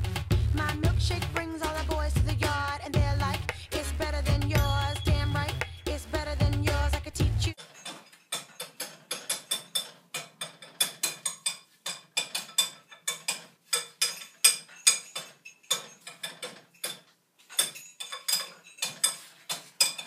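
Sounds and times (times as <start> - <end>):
background music: 0.0 - 7.6
clicking ticking beat: 0.0 - 7.6.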